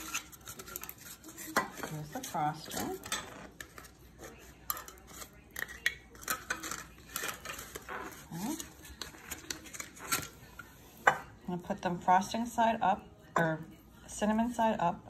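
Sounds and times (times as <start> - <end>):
metal utensil scraping: 0.0 - 11.2.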